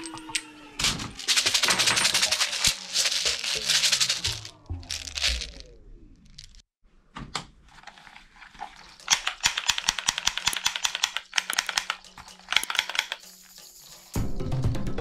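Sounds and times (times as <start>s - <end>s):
plastic toy guns clattering: 0.1s - 5.5s, 8.6s - 13.2s
plastic pellets rattling in a bag: 0.8s - 5.6s, 6.2s - 6.6s, 7.7s - 13.9s.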